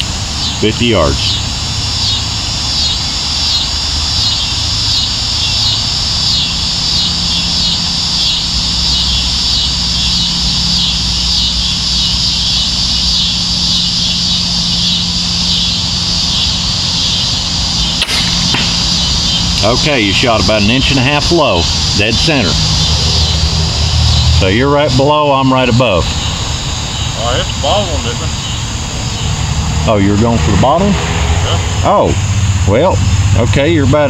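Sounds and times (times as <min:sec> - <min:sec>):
insect chorus pulsing: 0:00.0 - 0:34.0
low steady rumble: 0:00.0 - 0:34.0
crossbow firing snap: 0:17.9 - 0:19.6.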